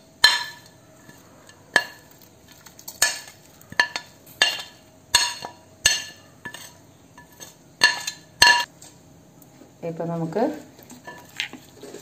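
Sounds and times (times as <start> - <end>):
metal spoon clinking on a plate: 0.2 - 8.7.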